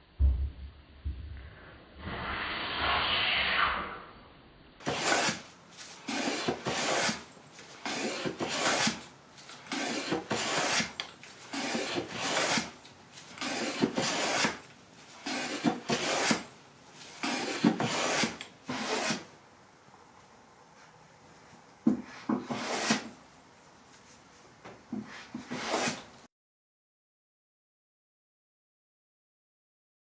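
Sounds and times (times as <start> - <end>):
hand plane shaving wood: 4.8 - 19.3, 22.0 - 23.1, 25.0 - 26.1.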